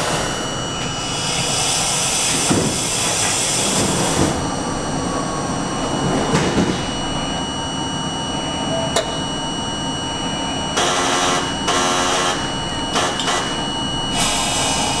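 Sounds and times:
air hissing from subway car: 0.0s - 4.4s, 13.0s - 15.0s
high-pitched equipment whine: 0.0s - 15.0s.

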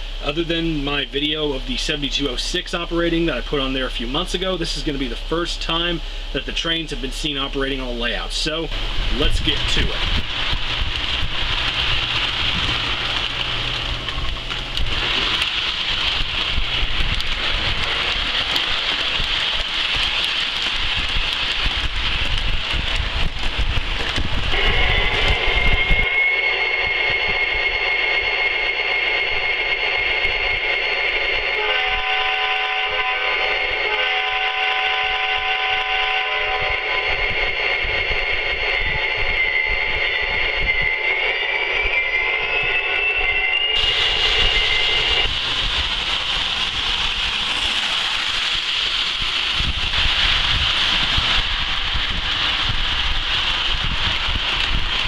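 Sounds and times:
model train wheels rolling: 6.6s - 26.1s, 38.3s - 55.0s
train horn chord: 24.5s - 30.6s, 31.5s - 40.2s.

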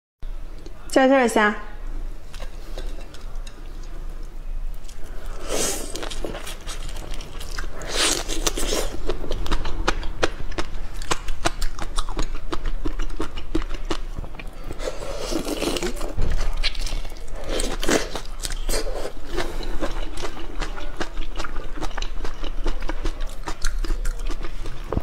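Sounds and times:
slurping: 4.8s - 9.2s.

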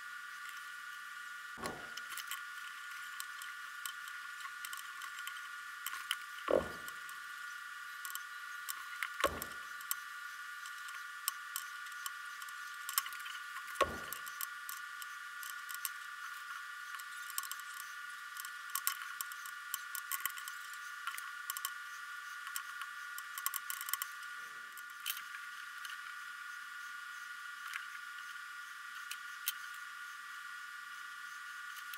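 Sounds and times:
steady high hum: 0.0s - 31.9s
low thumps: 6.5s - 6.9s.

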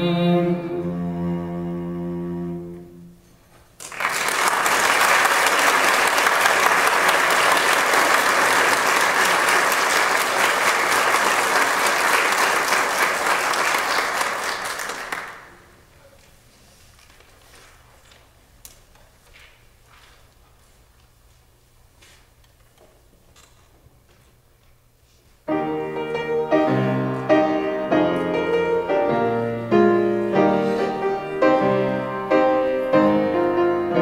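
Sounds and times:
audience applauding: 3.8s - 15.7s.

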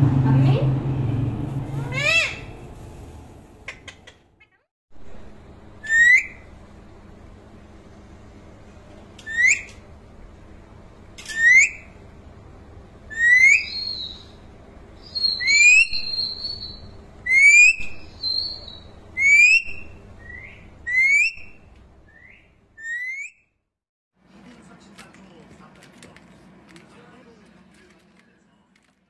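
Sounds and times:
parakeet whistling: 5.8s - 6.5s, 9.2s - 9.8s, 11.3s - 12.0s, 13.1s - 14.4s, 15.0s - 23.4s.

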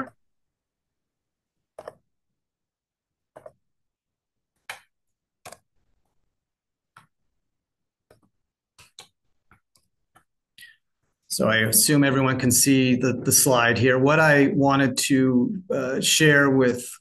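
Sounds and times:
computer mouse clicks: 1.7s - 2.1s, 3.3s - 3.6s, 4.6s - 6.0s, 8.0s - 10.3s.

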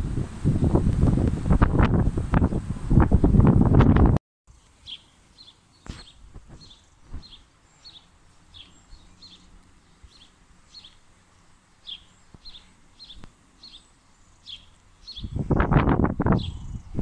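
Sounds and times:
faint outdoor background noise: 0.0s - 17.0s
small bird chirping: 4.5s - 17.0s.

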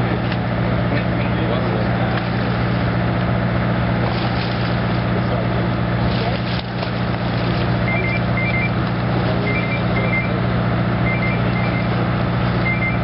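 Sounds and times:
low machinery drone: 0.0s - 13.0s
short high electronic beeps: 7.8s - 8.8s, 9.4s - 10.4s, 11.0s - 12.0s, 12.6s - 13.0s.

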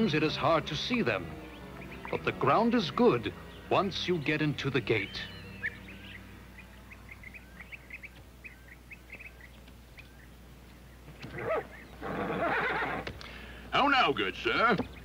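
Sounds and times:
loud animal call: 11.2s - 13.1s.

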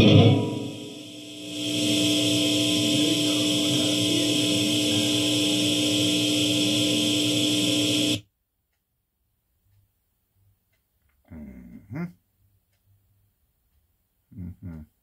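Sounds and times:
electric guitar amp hum and buzz: 0.0s - 8.2s.

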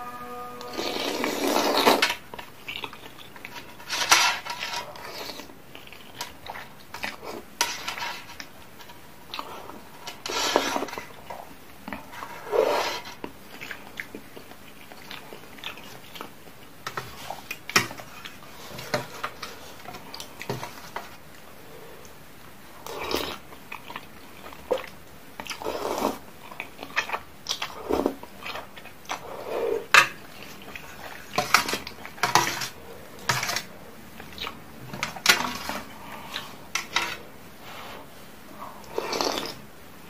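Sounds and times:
chewing: 1.6s - 22.2s, 22.8s - 39.6s
fork and spoon on metal tray: 31.4s - 33.7s
noodles slurping: 37.6s - 39.7s.

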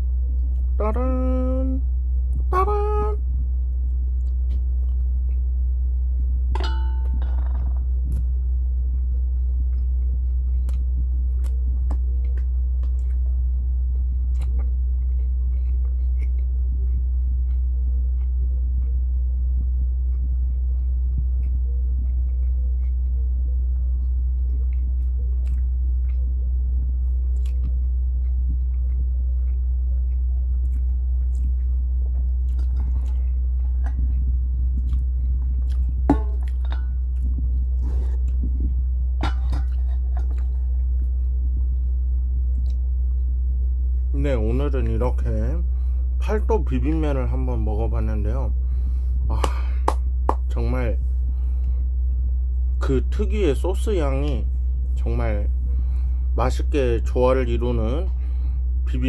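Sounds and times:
steady low hum: 0.0s - 59.0s
person chewing food: 3.5s - 44.1s.

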